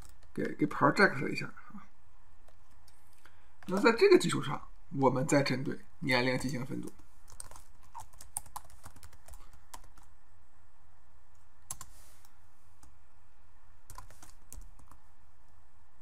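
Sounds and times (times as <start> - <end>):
steady low hum: 0.0 - 16.0
computer keyboard keystrokes: 6.8 - 10.1, 11.7 - 11.9, 13.9 - 15.0.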